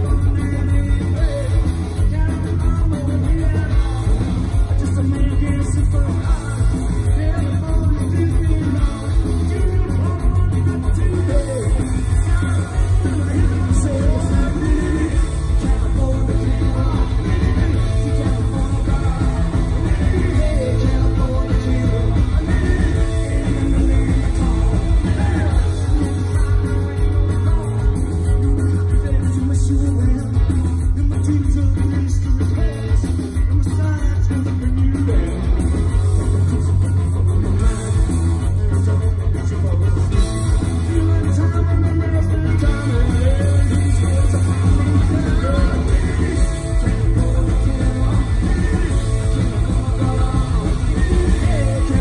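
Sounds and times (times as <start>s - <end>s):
man singing: 0.0s - 36.9s, 37.5s - 52.0s
punk rock band playing live: 0.0s - 52.0s.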